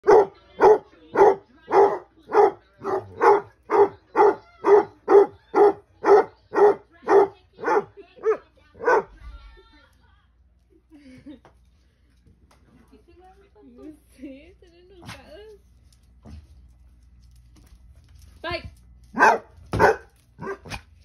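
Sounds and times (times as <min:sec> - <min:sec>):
dog barking: 0:00.0 - 0:09.2, 0:19.1 - 0:20.9.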